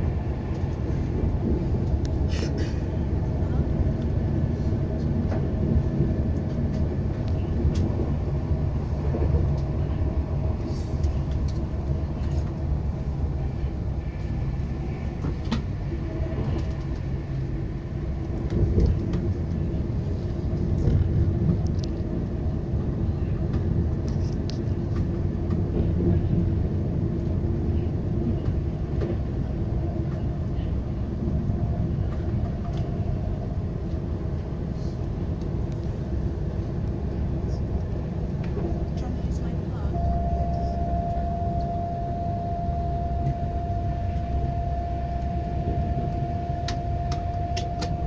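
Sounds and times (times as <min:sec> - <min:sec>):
train wheels rumbling on rail: 0:00.0 - 0:48.0.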